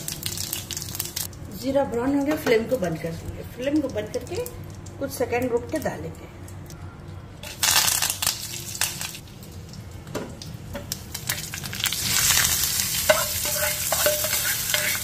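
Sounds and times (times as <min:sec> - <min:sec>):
spices sizzling in hot oil: 0:00.0 - 0:01.3, 0:07.4 - 0:15.0
steady sizzle: 0:00.0 - 0:06.6, 0:07.2 - 0:15.0.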